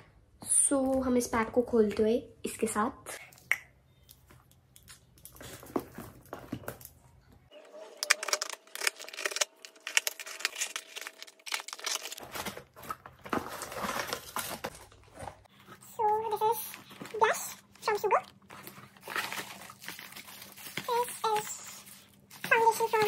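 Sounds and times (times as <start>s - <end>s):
plastic crackling and rustling: 7.8s - 23.0s
cardboard and plastic tearing: 7.9s - 23.0s.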